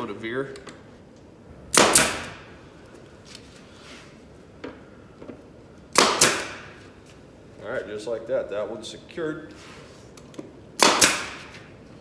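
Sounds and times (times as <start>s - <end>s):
nail gun firing with hiss: 1.7s - 2.5s, 5.9s - 6.8s, 10.8s - 11.7s.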